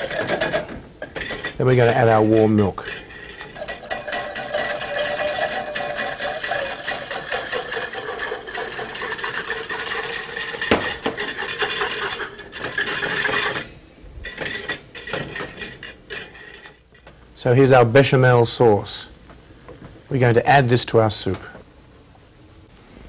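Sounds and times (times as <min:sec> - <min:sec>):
wire whisk scraping a saucepan: 0:00.0 - 0:17.0.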